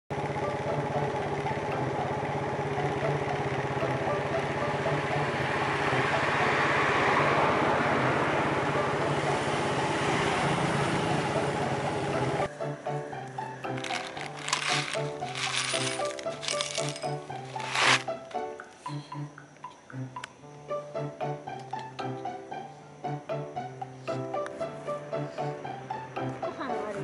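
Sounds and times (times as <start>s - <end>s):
vehicle engine running: 0.1s - 12.5s, 13.8s - 18.0s
vehicle passing: 5.4s - 11.4s.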